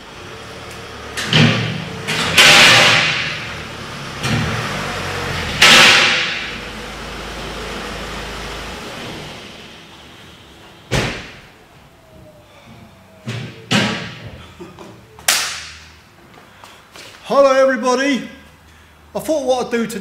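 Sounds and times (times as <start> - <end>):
car driving slowly: 0.0 - 15.2.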